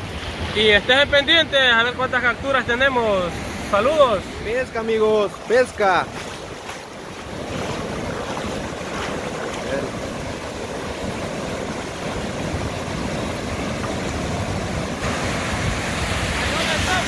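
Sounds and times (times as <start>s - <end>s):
ocean surf washing: 0.0s - 17.0s
wave breaking: 0.0s - 17.0s.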